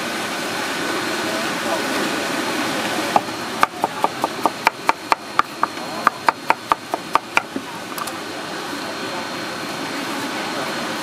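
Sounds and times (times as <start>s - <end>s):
cleaver chopping on wooden board: 3.2s - 7.6s.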